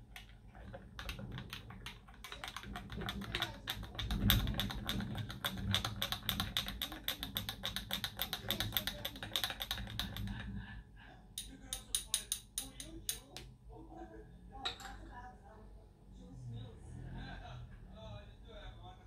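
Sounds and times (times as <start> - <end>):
teaspoon clinking against glass cup: 11.4 - 13.4.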